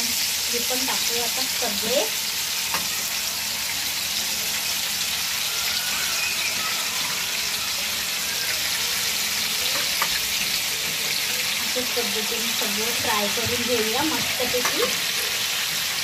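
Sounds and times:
chicken frying in oil: 0.0 - 16.0.

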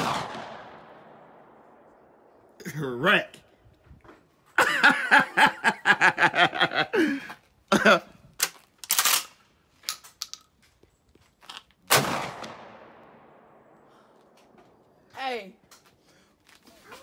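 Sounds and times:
shotgun blast with echo: 0.0 - 1.5, 11.9 - 13.0
woman laughing: 4.6 - 8.1.

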